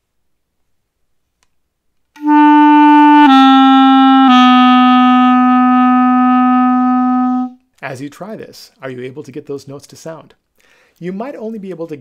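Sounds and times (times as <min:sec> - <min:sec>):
clarinet playing held notes: 0:02.2 - 0:07.6.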